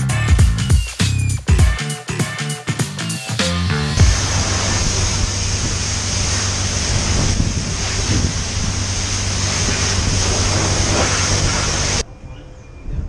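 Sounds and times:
pressure washer spraying water: 4.0 - 12.0
low hum: 4.0 - 13.0.

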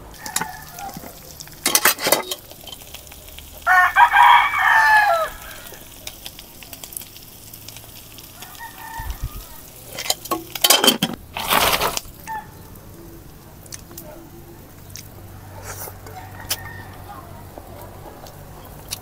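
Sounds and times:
rooster crowing: 0.1 - 1.3, 3.6 - 5.9, 8.3 - 9.8, 12.2 - 12.6, 15.3 - 18.2
scraping and rustling handling noise: 9.9 - 12.4.

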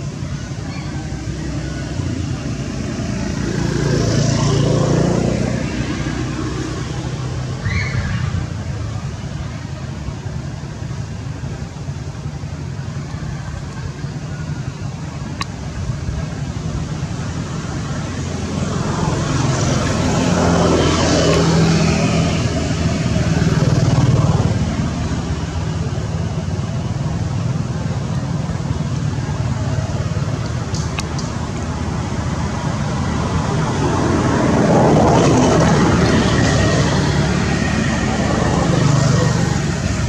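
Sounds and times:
low engine hum: 0.0 - 40.0
road traffic passing: 0.0 - 40.0.

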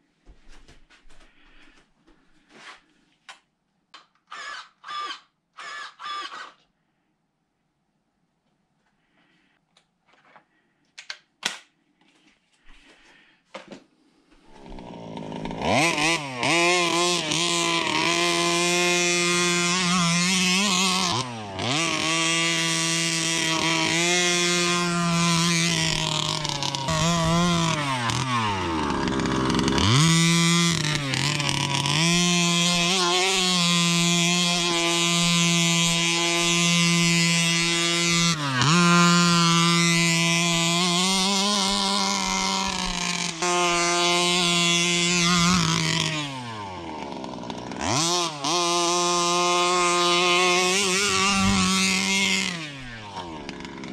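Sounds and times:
two-stroke engine revving: 14.5 - 53.9.

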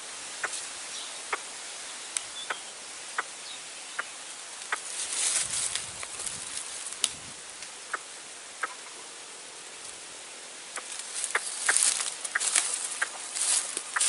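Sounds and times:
crackling and rustling: 4.6 - 7.8, 10.7 - 14.0.

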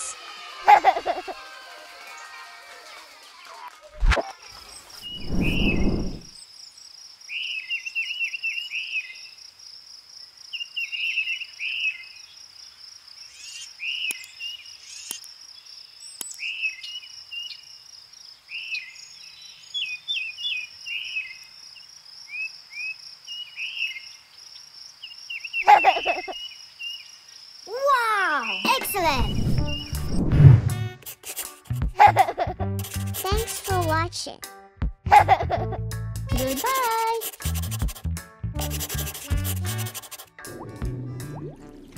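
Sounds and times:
titmouse whistled song: 5.0 - 6.3, 28.4 - 30.2.

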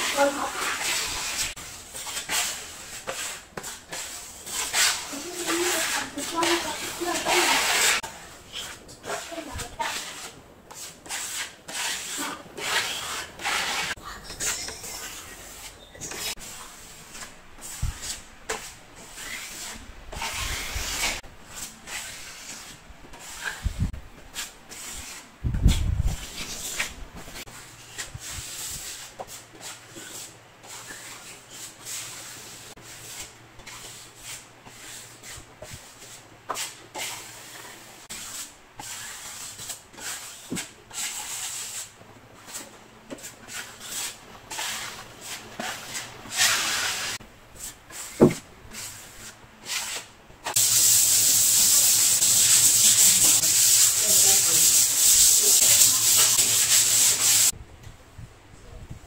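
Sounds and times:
sanding block rasping: 49.8 - 57.5.

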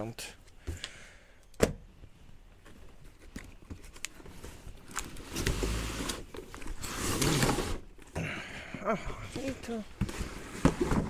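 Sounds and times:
cardboard scraping and rustling: 2.6 - 8.0, 9.4 - 11.0.

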